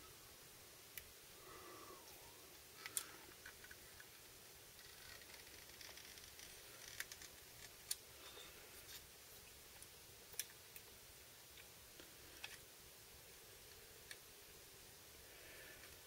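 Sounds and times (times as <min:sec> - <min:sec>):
faint toy joint clicks: 0:02.8 - 0:04.2.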